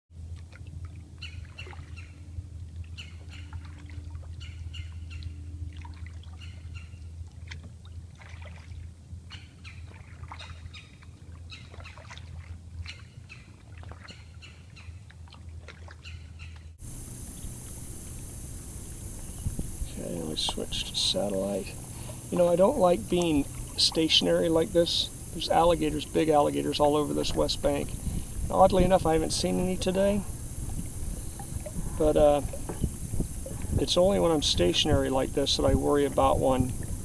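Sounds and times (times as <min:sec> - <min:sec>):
birds chirping and calling: 0:16.0 - 0:37.0
steady low hum: 0:16.8 - 0:37.0
wind blowing on microphone: 0:16.8 - 0:37.0.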